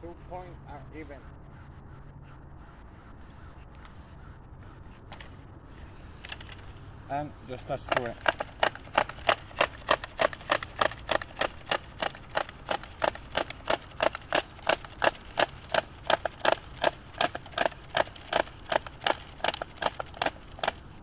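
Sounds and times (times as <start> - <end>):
trimmer head ratchet clicking: 7.6 - 20.8.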